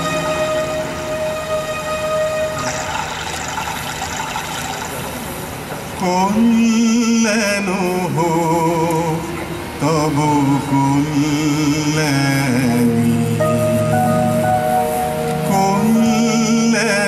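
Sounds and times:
instrumental accompaniment: 0:00.0 - 0:03.7, 0:12.7 - 0:17.0
low sustained drone: 0:00.0 - 0:03.8, 0:07.8 - 0:17.0
solo voice singing with vibrato: 0:06.0 - 0:17.0.

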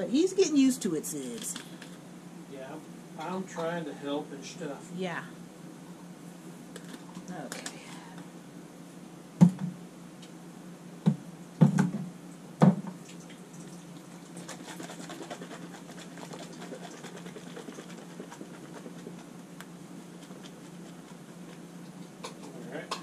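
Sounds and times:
faint steady patter: 0:13.6 - 0:23.0.

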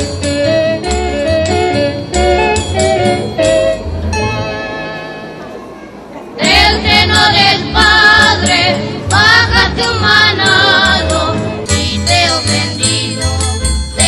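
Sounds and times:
instrumental backing music: 0:00.0 - 0:14.0
people singing a christmas song: 0:06.4 - 0:14.0.

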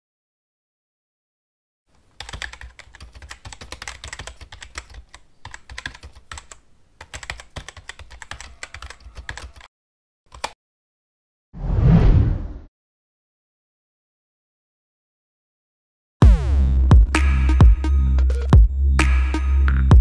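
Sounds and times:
computer keyboard typing: 0:02.2 - 0:09.7, 0:10.3 - 0:10.6.

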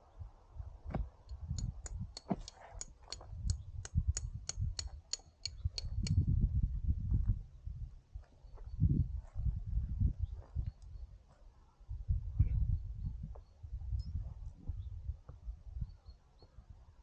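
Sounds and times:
sharp high-pitched ticks: 0:01.3 - 0:06.3.

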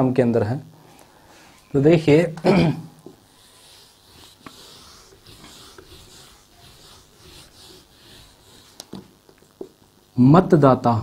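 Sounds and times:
duster wiping whiteboard: 0:01.3 - 0:09.8.

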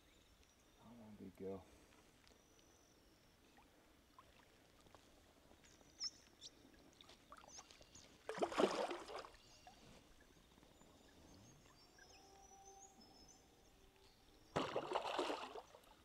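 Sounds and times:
faint bird chirps: 0:05.6 - 0:06.7, 0:09.2 - 0:16.0
water splash: 0:08.3 - 0:09.4, 0:14.5 - 0:16.0.

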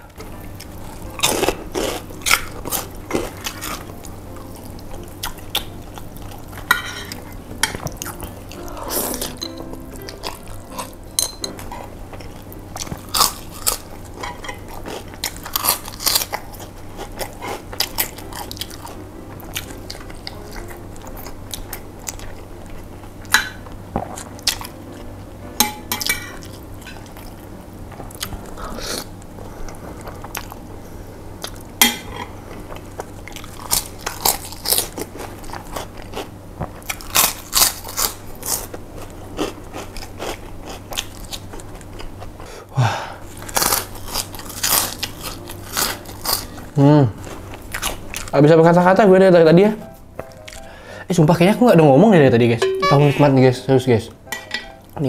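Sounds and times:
crunching fried crackers: 0:00.5 - 0:06.7, 0:12.1 - 0:23.0, 0:32.5 - 0:42.6, 0:43.3 - 0:49.1
chewing noodles: 0:11.8 - 0:23.1, 0:32.5 - 0:42.5, 0:43.3 - 0:48.4.

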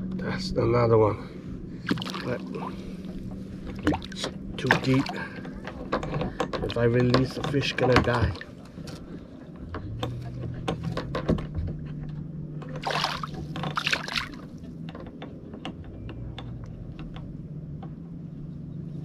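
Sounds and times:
steady low hum: 0:00.0 - 0:19.0
water splashing: 0:01.8 - 0:03.0, 0:03.7 - 0:05.5, 0:12.7 - 0:14.6
fishing gear clicks and knocks: 0:03.6 - 0:17.4.

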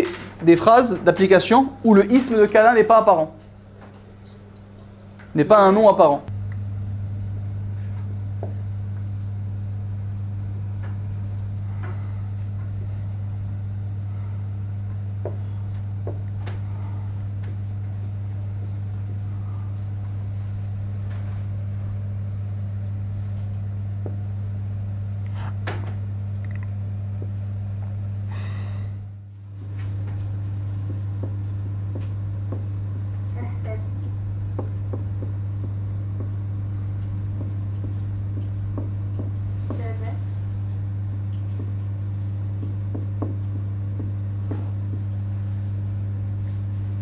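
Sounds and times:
low electrical hum: 0:00.0 - 0:47.0
pen writing on a board: 0:30.8 - 0:32.7, 0:33.7 - 0:36.4, 0:37.0 - 0:40.2, 0:41.3 - 0:45.2.

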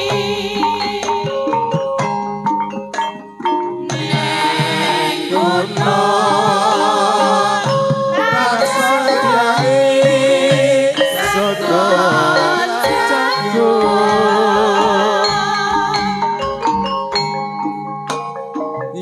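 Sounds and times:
women singing with vibrato: 0:00.0 - 0:01.8, 0:03.9 - 0:16.4
gamelan ensemble playing: 0:00.0 - 0:19.0.

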